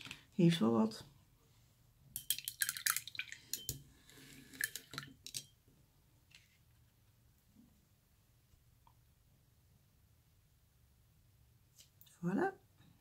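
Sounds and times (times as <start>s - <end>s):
paintbrush rinsed in water: 2.2s - 5.2s
paintbrush clinking against ceramic mug: 3.5s - 3.8s.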